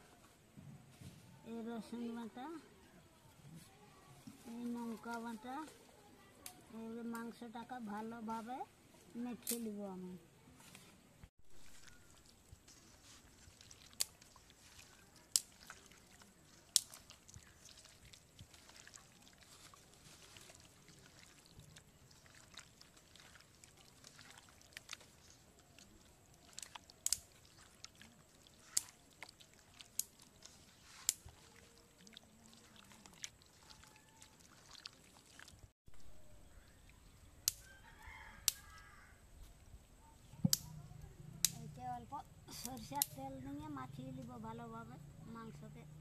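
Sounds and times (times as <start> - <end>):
wet squelching of kneaded meat: 11.5 - 35.8.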